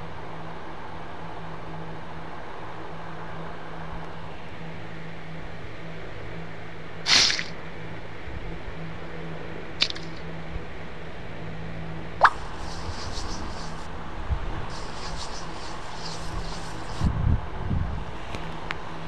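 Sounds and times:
steady hiss: 7.1s - 7.6s, 12.2s - 17.2s
low hum: 12.0s - 19.0s.

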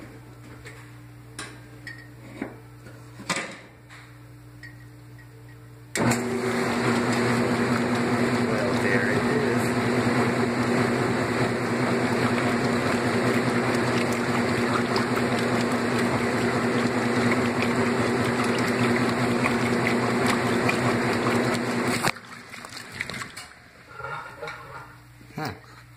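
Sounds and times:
washing machine motor humming: 5.9s - 24.8s
water moving in tub: 10.9s - 24.5s.

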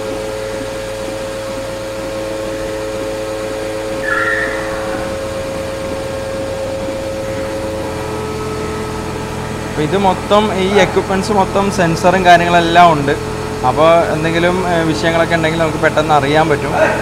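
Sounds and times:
milking machinery humming: 0.0s - 17.0s
high squeak: 4.0s - 5.3s.

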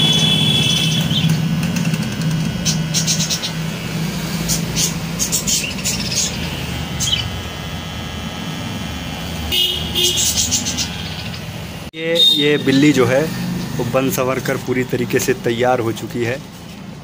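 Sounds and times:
electric hair clipper buzzing: 0.0s - 11.9s, 12.7s - 15.5s
blades scratching through fur: 1.2s - 9.2s.

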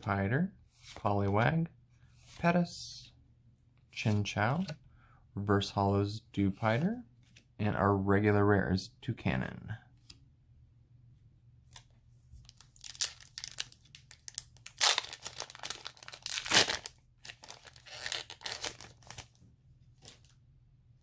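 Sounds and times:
foil wrapper crinkling and tearing: 12.5s - 19.3s.

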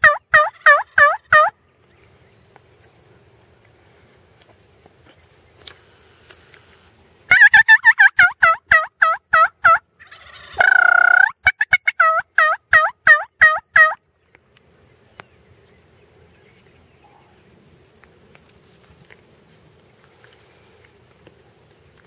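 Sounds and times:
turkey call yelps: 0.0s - 1.6s, 7.3s - 14.0s.

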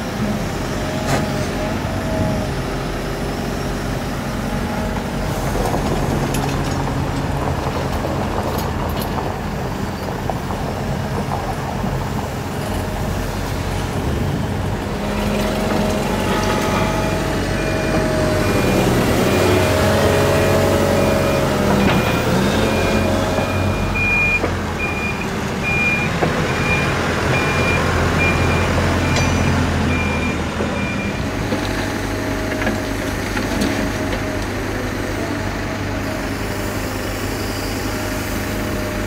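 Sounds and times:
diesel engine running: 0.0s - 39.0s
reversing alarm beeping: 16.7s - 31.2s.

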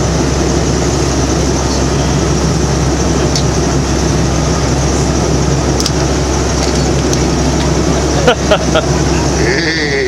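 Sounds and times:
boat engine droning: 0.0s - 10.0s.

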